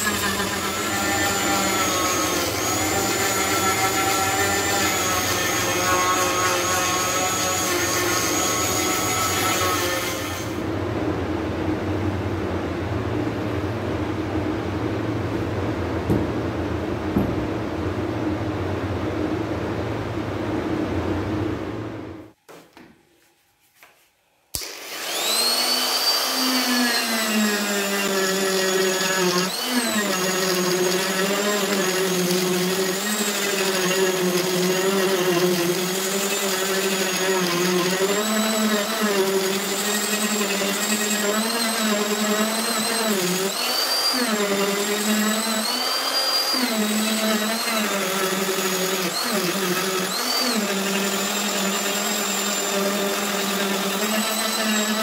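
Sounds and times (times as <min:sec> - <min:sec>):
die grinder whining: 0:00.0 - 0:10.6, 0:24.6 - 0:55.0
steady noisy hum: 0:10.6 - 0:24.0.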